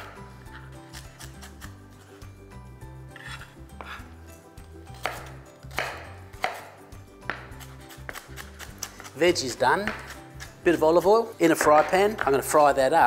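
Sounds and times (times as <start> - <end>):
knife chopping on plastic board: 5.0 - 10.5.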